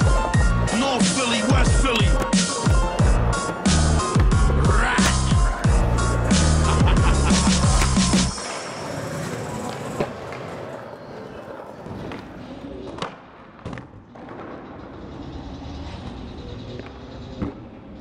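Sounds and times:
skateboard wheels rolling on concrete: 0.0s - 18.0s
skateboard clacks: 6.1s - 14.4s.

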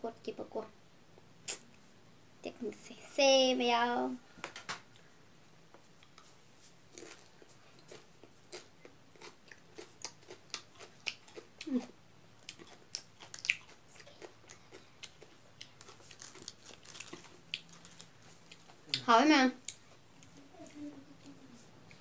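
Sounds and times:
person chewing food: 5.8s - 19.0s, 19.6s - 22.0s.

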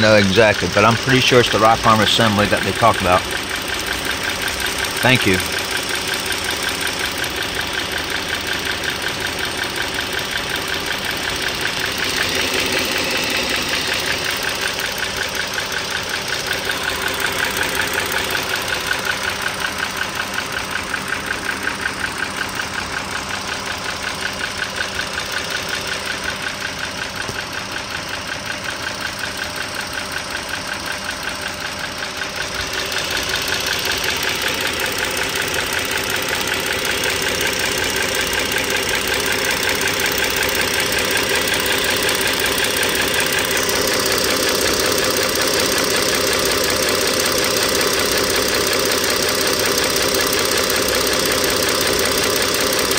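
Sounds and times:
car engine idling: 0.0s - 52.9s
fast clicking engine tap: 25.3s - 31.6s, 32.5s - 52.9s.

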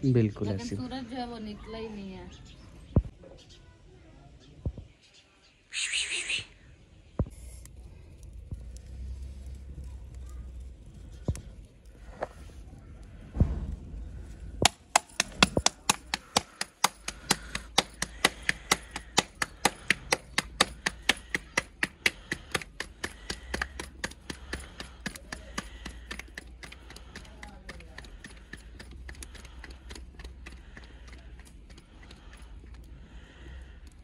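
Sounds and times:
dough slapped between palms: 14.6s - 32.5s.

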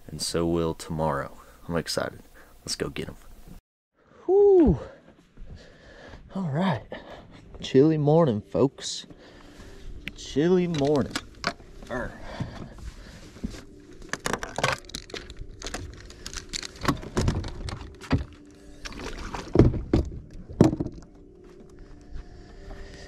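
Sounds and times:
faint steady hum: 0.0s - 6.1s
fishing gear knocking and rattling: 14.0s - 21.3s.

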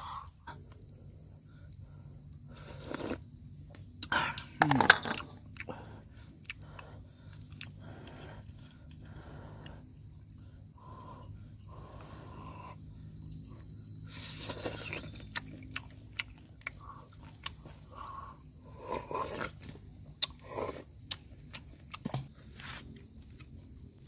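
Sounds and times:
sucking at snail shells: 1.6s - 13.0s, 13.9s - 23.5s
chewing: 5.1s - 10.5s, 12.0s - 23.9s.

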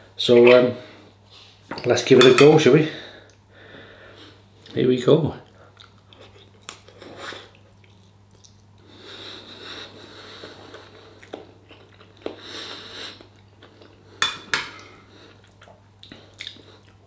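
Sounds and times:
man chewing food: 5.6s - 17.0s.

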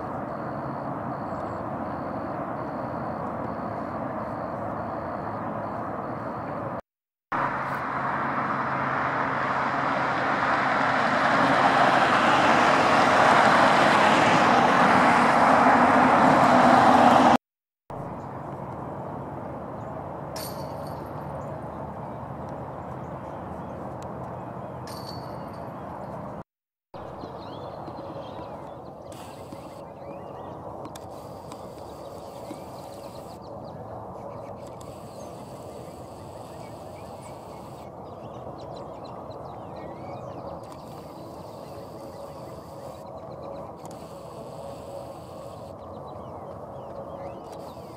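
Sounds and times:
traffic hum: 0.0s - 6.8s, 7.4s - 26.4s, 27.0s - 47.9s
approaching engine: 7.4s - 17.4s.

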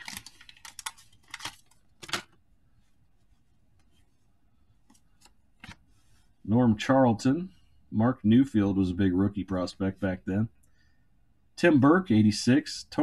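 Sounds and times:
wax paper wrapper crackling: 0.0s - 2.2s.

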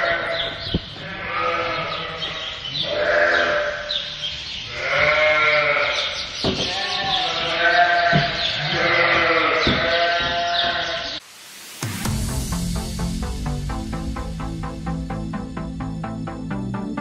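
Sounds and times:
sheep bleating: 0.0s - 11.2s.

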